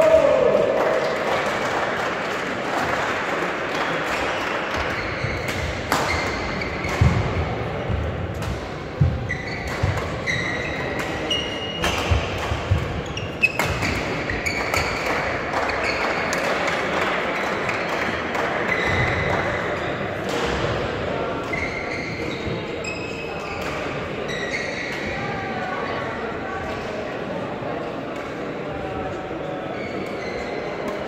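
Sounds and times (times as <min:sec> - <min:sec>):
echoing hall din: 0:00.0 - 0:21.4
shoes squeaking on floor: 0:04.8 - 0:07.2, 0:09.0 - 0:15.1, 0:15.7 - 0:16.2, 0:21.5 - 0:23.5, 0:24.3 - 0:25.0, 0:29.8 - 0:30.9.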